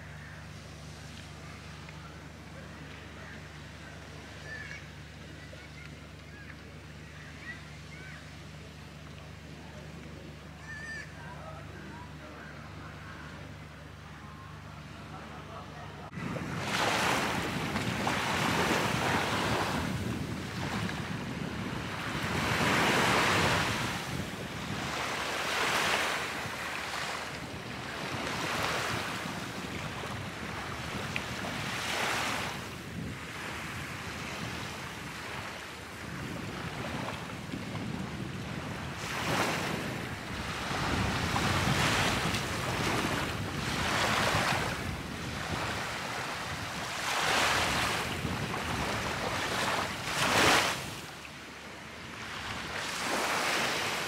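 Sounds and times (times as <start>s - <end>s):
wind rumble on microphone: 16.1s - 51.2s
small waves washing onto sand: 16.1s - 54.0s.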